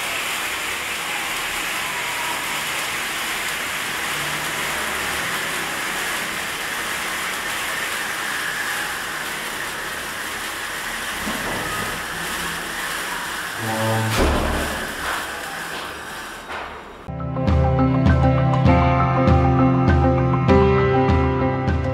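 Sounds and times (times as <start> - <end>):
sparklers hissing: 0.0 - 17.1.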